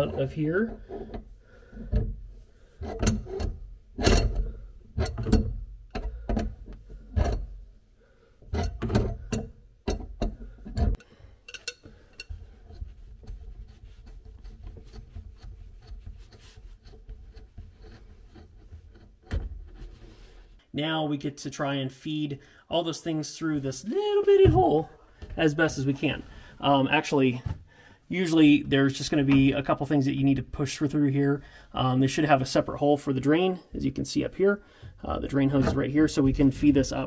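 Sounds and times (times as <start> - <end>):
hand tool knocks and scrapes: 2.8 - 7.6, 8.4 - 20.4.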